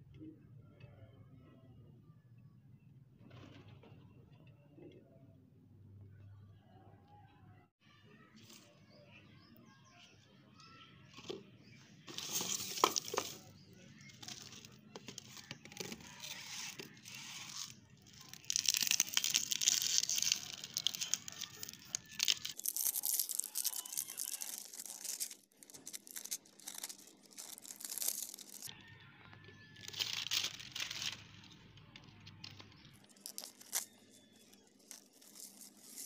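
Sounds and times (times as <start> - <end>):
plastic wrapping crinkling and tearing: 12.1 - 28.7, 29.7 - 36.0.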